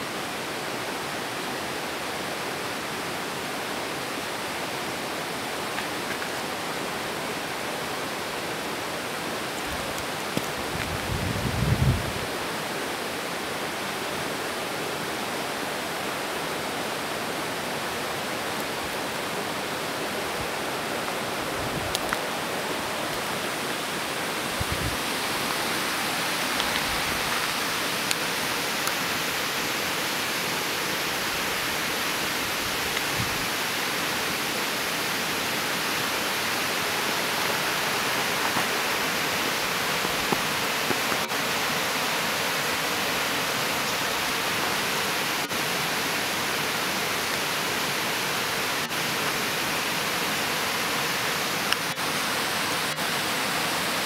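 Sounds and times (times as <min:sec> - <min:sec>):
rushing hiss: 0:15.2 - 0:54.0.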